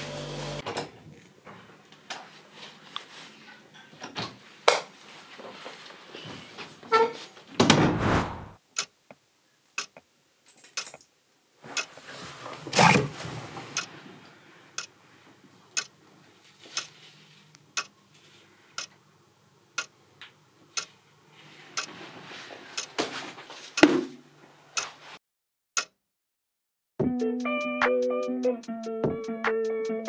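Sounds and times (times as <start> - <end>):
clock ticking: 9.8 - 10.0.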